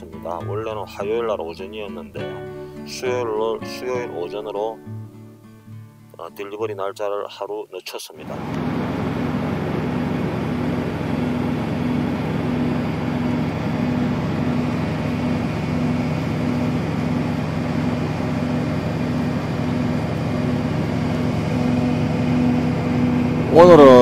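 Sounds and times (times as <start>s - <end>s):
diesel truck engines idling: 8.2s - 24.0s.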